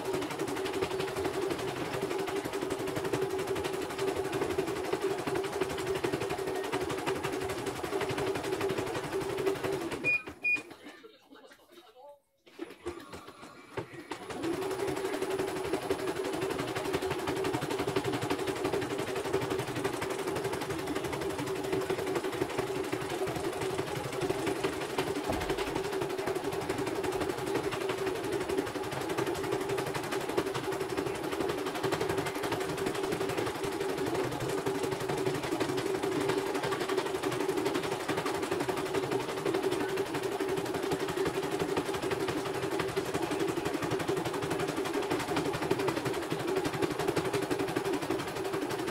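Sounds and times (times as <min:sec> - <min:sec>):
motor hum: 0:13.8 - 0:48.9.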